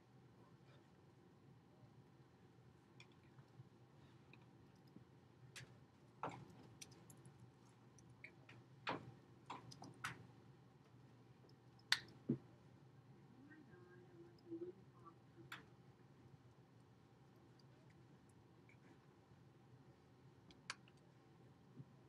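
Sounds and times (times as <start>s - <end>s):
faint clicks and taps: 4.3s - 12.5s.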